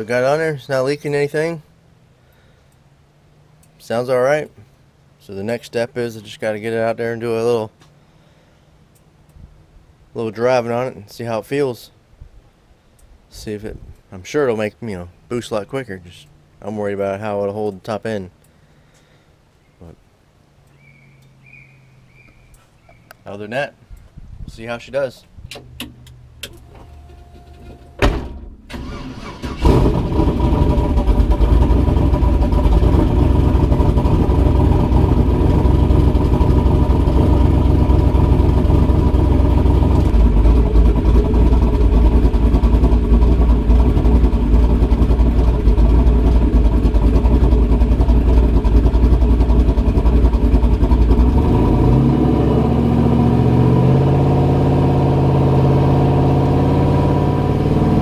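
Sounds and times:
turbocharged engine starting and running: 0:25.5 - 0:58.0.

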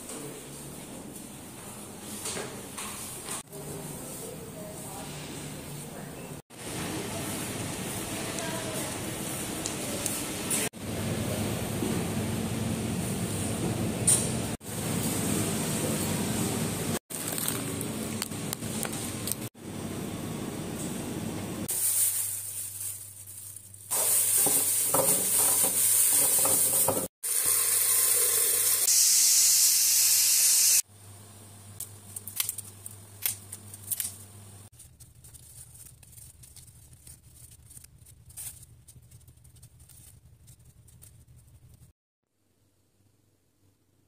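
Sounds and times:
shop background noise: 0:00.0 - 0:21.8
pressure cooker hissing steam: 0:23.9 - 0:30.8.

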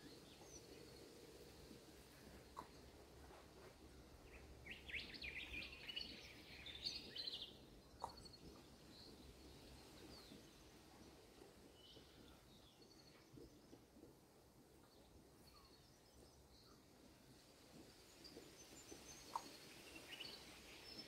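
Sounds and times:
birds twittering: 0:00.0 - 0:03.3, 0:03.9 - 0:14.1, 0:14.8 - 0:21.0.

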